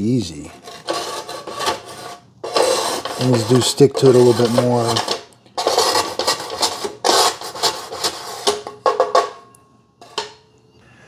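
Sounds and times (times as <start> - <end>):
plastic scraper on grill plate: 0.5 - 9.1.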